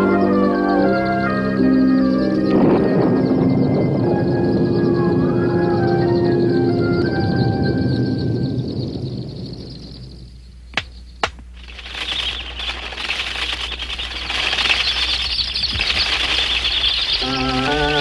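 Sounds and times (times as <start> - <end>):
organ chord: 0.0 - 8.6
sharp clicks: 10.7 - 18.0
fluttering rustle: 11.5 - 18.0.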